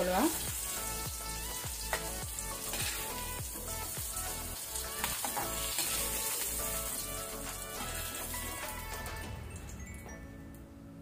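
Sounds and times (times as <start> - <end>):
onions sizzling in oil: 0.0 - 9.2
ladle scraping a pan: 2.6 - 3.2.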